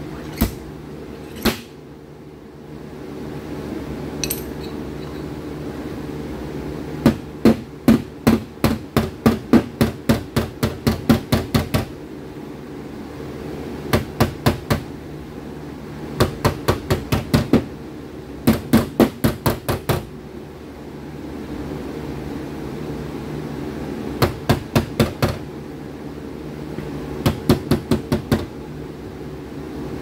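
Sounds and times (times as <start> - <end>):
steady hum: 0.0 - 30.0
hammer tapping on sheet metal: 7.0 - 11.9, 13.9 - 14.9, 16.2 - 17.7, 18.4 - 20.1, 24.2 - 25.4, 27.2 - 28.5.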